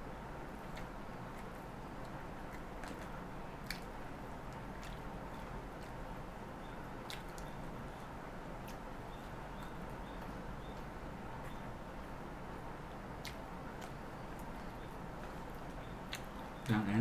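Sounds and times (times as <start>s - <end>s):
steady background hum: 0.0s - 17.0s
person chewing: 0.6s - 6.0s, 7.0s - 8.8s, 13.2s - 16.4s
sharp mouth clicks: 0.7s - 3.9s, 16.1s - 16.4s.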